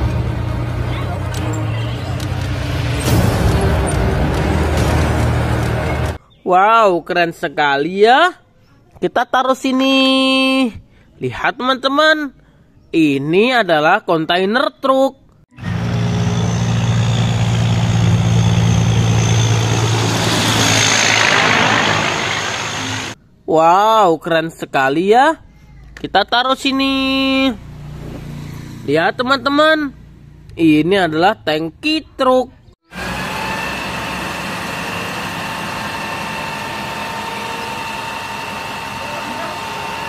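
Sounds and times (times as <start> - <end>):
diesel truck engine drone: 0.0 - 6.2, 15.5 - 23.2, 32.9 - 40.0
steady high whine: 15.6 - 23.2
water cannon spraying: 15.7 - 23.2.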